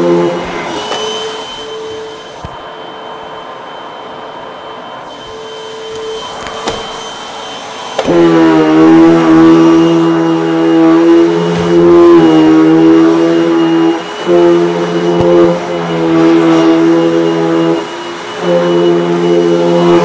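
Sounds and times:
vacuum cleaner running: 0.0s - 20.0s.

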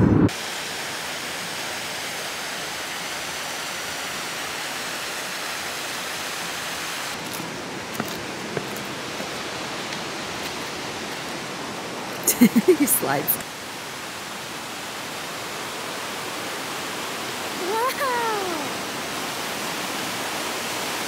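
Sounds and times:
water cascading over rocks: 0.3s - 21.0s.

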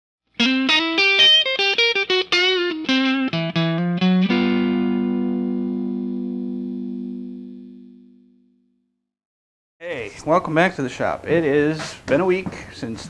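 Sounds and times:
guitar plucked notes and chord: 0.4s - 8.8s.

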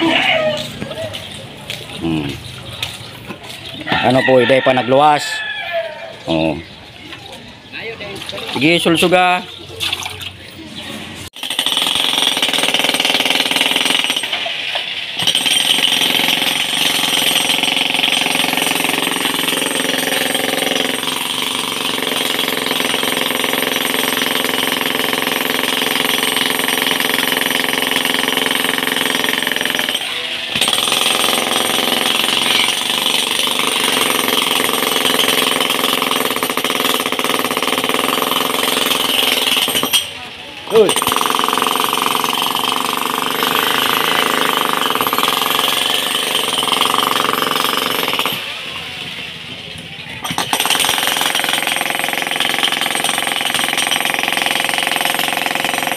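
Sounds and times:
demolition hammer chiselling concrete: 11.3s - 48.7s, 50.2s - 55.9s.

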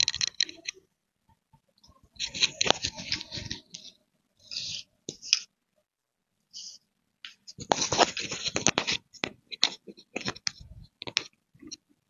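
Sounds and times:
cloth rustling and scratching: 2.2s - 5.4s, 7.4s - 11.2s.

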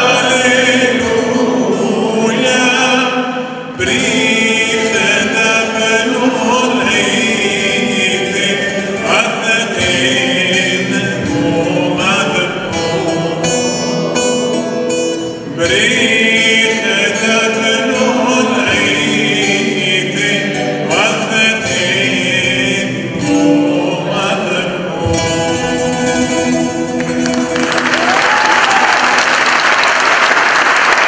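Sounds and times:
plucked lute: 0.0s - 27.9s
man and girls singing: 0.0s - 28.2s
audience applause: 27.0s - 31.0s.

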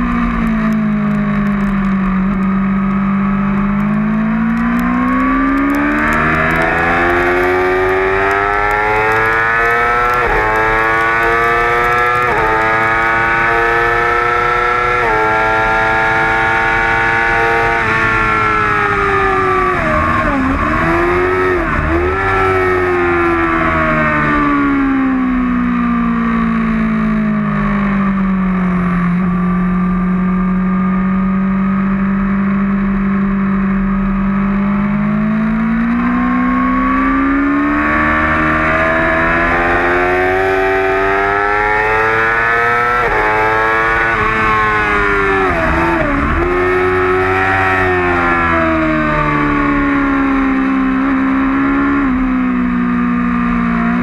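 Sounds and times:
sport-bike engine revving: 2.1s - 25.0s, 29.9s - 54.0s.

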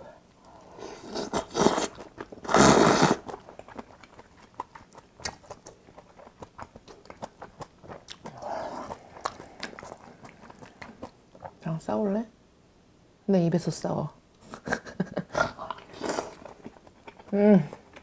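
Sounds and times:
wet chewing: 0.4s - 11.7s, 15.6s - 18.0s
slurping noodles: 0.8s - 3.8s.

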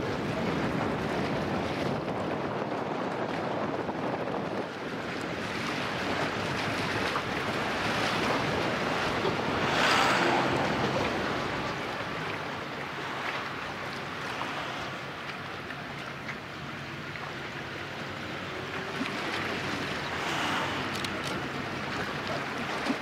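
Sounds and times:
sea waves washing on shore: 0.0s - 23.0s.

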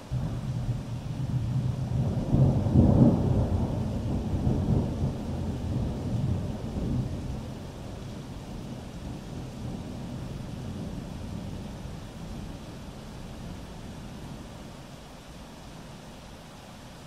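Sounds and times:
thunder rumbling: 0.1s - 7.6s.

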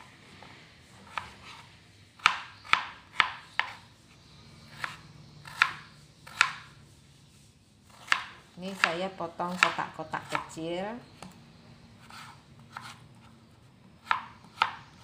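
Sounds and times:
knife chopping on cutting board: 1.0s - 3.9s, 4.7s - 6.7s, 7.9s - 10.6s, 12.0s - 13.4s, 14.0s - 15.0s.

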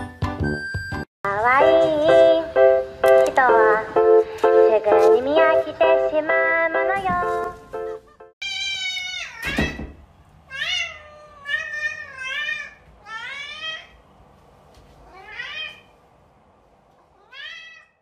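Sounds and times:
cat meowing: 8.4s - 9.8s, 10.5s - 14.0s, 15.0s - 15.9s, 17.0s - 18.0s.

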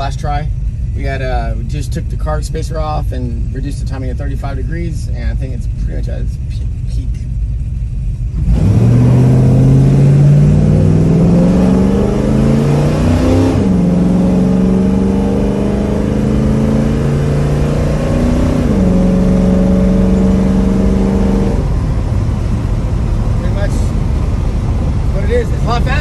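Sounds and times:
car engine accelerating hard: 8.2s - 26.0s.

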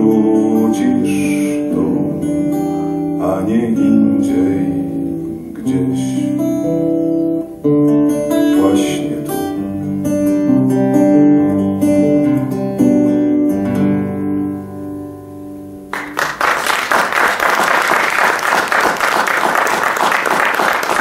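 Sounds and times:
acoustic guitar chords: 0.0s - 16.6s
audience applause: 15.9s - 21.0s.

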